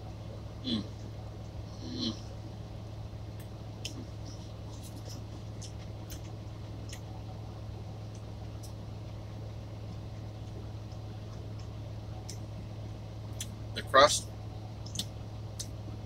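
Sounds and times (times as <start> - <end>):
truck cab hum: 0.0 - 16.0
person chewing food: 3.4 - 7.1.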